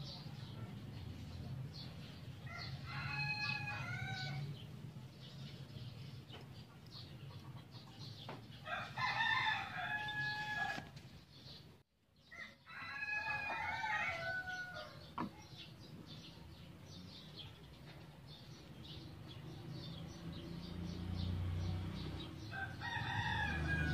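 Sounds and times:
rooster crowing: 2.4s - 4.5s, 8.6s - 10.9s, 12.3s - 15.0s, 22.5s - 23.9s.

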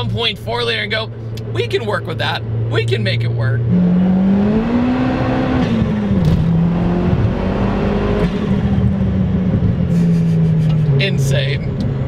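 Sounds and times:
car engine droning under throttle: 2.3s - 12.0s.

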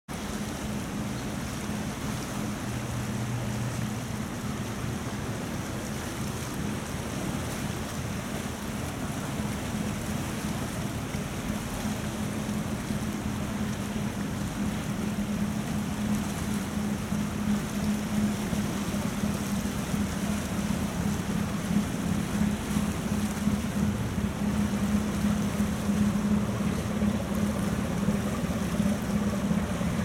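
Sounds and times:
low drone of ship engines: 0.1s - 30.0s
tidal current rushing: 7.3s - 30.0s.

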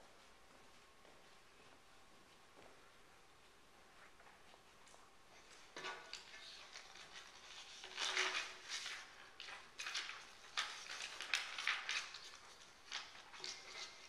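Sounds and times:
paper rustling and crinkling: 5.4s - 14.0s.

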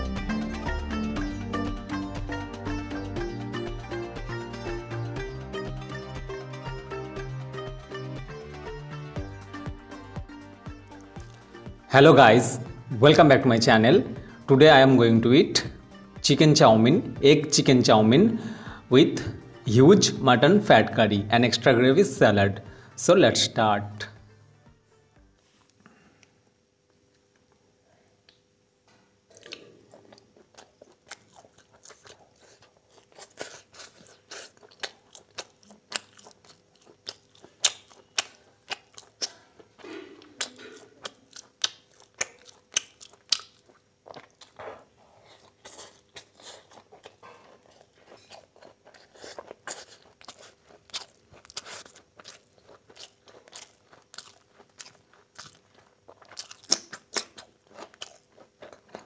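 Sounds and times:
close chewing with mouth clicks: 29.3s - 59.0s.

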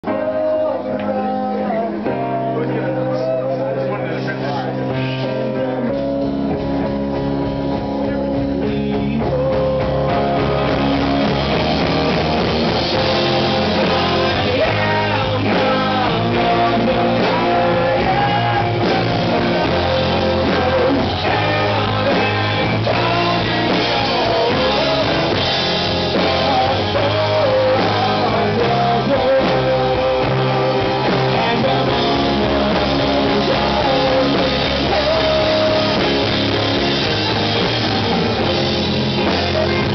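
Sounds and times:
electric bass: 0.0s - 39.9s
electric guitar: 0.0s - 39.9s
keyboard: 0.0s - 39.9s
drum kit: 4.2s - 39.9s.

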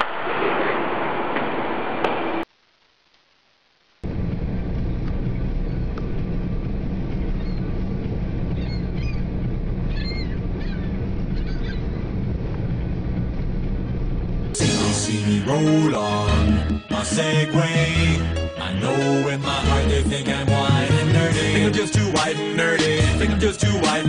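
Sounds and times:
low rumble: 4.0s - 17.0s
gulls squawking: 8.5s - 12.0s.

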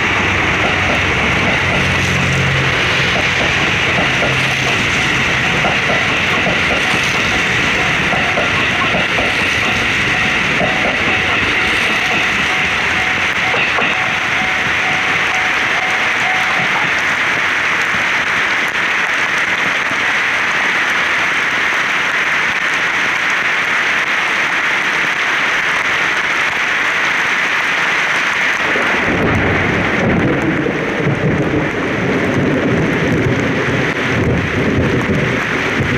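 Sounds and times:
rolling thunder rumble: 0.0s - 20.0s, 28.5s - 35.9s
torrential rain: 0.0s - 35.9s.

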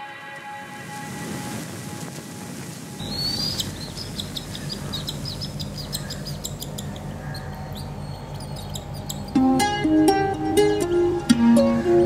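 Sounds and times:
background music: 0.0s - 1.7s, 9.3s - 12.0s
bird chick chirping: 3.0s - 9.4s
low steady hum: 3.0s - 12.0s.

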